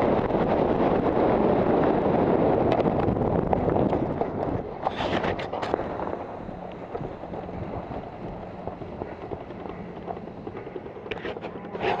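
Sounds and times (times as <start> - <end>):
wind buffeting microphone: 0.0 - 12.0
small clicks and rustles: 3.8 - 12.0.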